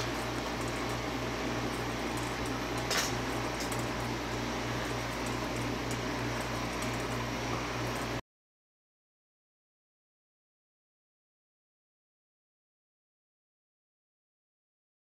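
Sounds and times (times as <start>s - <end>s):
electrical hum and hiss: 0.0s - 8.2s.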